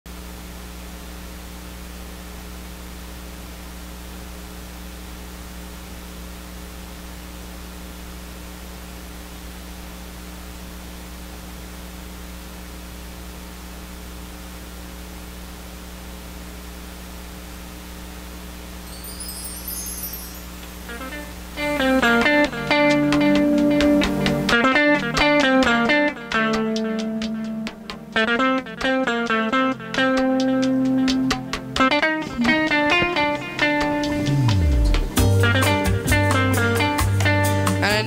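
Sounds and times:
steady hiss: 18.8s - 23.0s.

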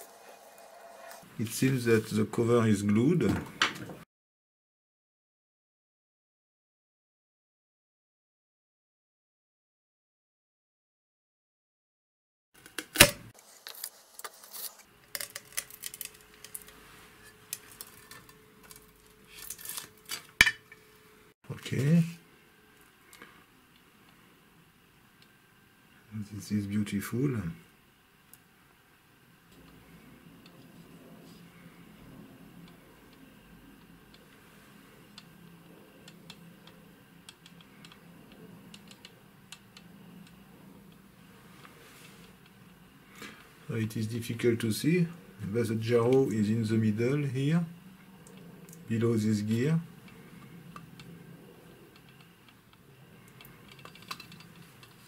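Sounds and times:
low steady hum: 13.0s - 55.0s
light clicks and rattles of metal cover: 53.3s - 55.0s.

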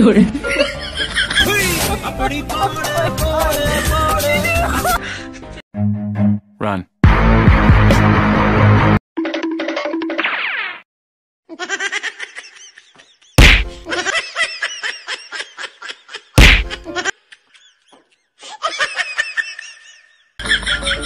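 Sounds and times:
high-pitched laughter: 11.5s - 21.0s
loud whack hits: 13.4s - 13.8s, 16.4s - 16.8s.

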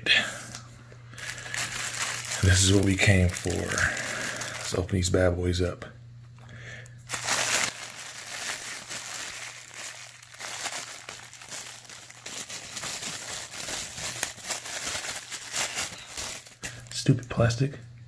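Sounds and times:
plastic wrapping crinkling: 1.2s - 5.0s, 7.1s - 17.2s.

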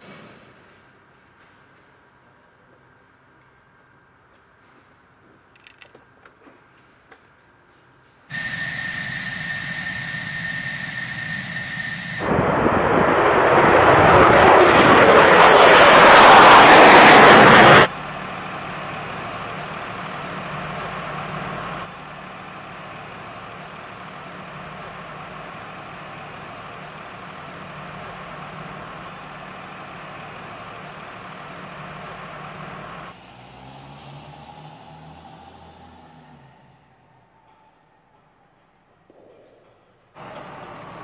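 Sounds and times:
jet hiss with high whine: 8.3s - 13.7s
jet taking off on afterburner: 8.3s - 17.9s.

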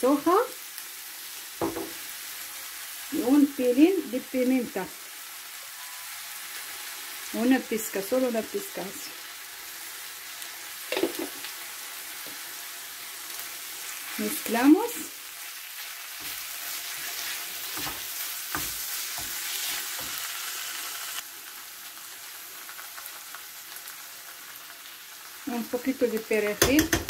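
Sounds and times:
food sizzling in a frying pan: 0.0s - 27.0s
wooden spatula knocking on pan: 1.6s - 2.0s, 26.6s - 27.0s.

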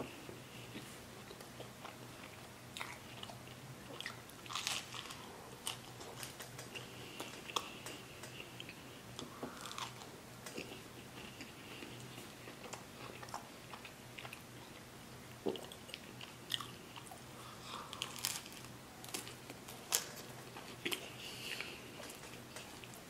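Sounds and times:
chewing and biting food: 0.7s - 14.8s.

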